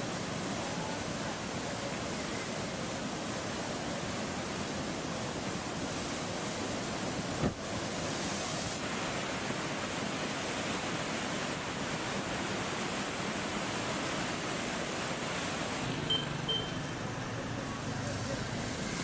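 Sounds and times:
floodwater rushing: 0.0s - 19.0s
short high beeps: 16.0s - 17.0s.

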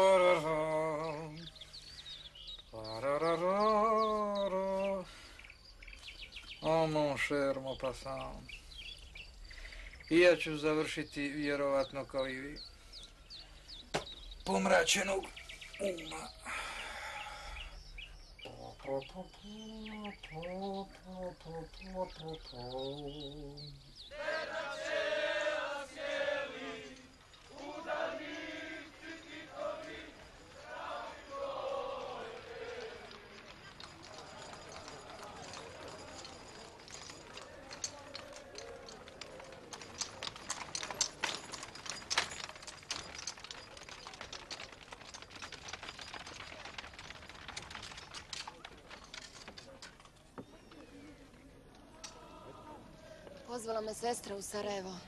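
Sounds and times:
clatter of hooves: 0.0s - 52.6s
people's footsteps: 0.0s - 55.0s
crowd singing in chorus: 24.1s - 33.5s, 51.9s - 53.3s.

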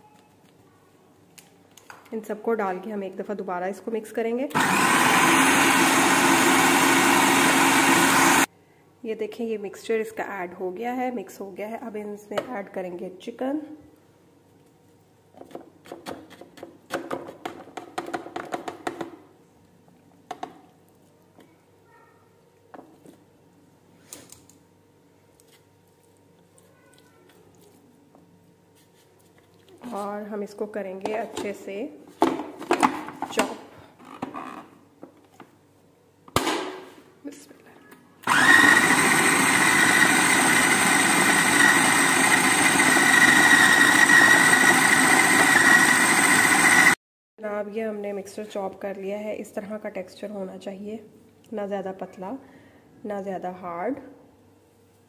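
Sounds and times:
food processor motor running: 4.6s - 8.5s, 38.2s - 47.0s.

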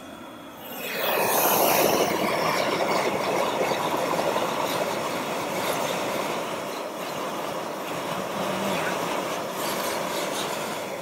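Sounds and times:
gas burner rushing: 0.5s - 8.4s.

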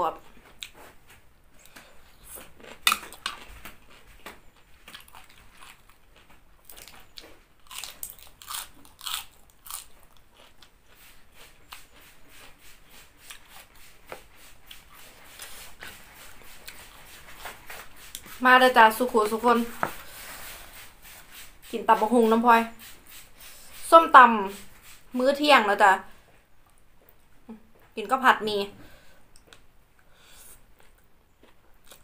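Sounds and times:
person chewing crunchy salad: 0.4s - 1.0s, 1.6s - 18.4s, 30.3s - 32.0s.

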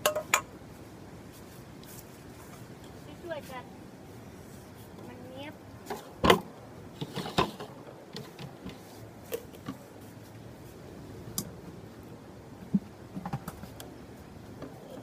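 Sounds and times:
tableware clicking and knocking: 0.0s - 0.5s.

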